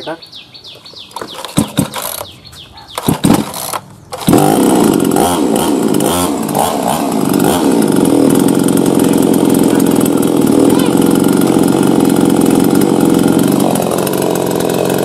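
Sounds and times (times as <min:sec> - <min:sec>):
starter cord pulls: 0:01.1 - 0:02.3, 0:03.0 - 0:05.2
chainsaw engine revving: 0:01.2 - 0:15.0.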